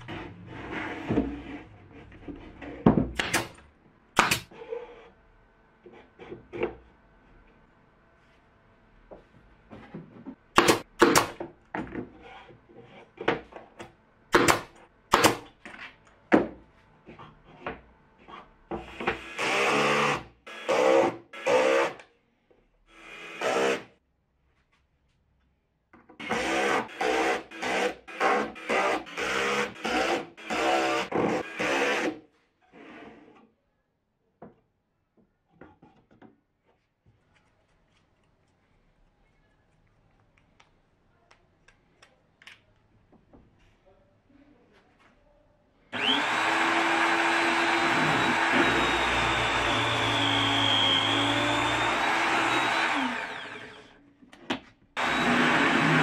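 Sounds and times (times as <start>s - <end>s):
brad nailer firing into plywood: 4.2s - 4.5s, 10.6s - 11.4s, 14.4s - 15.5s
steady motor whir: 46.0s - 53.8s, 55.0s - 56.0s
cordless drill whining: 46.0s - 53.9s, 55.0s - 56.0s.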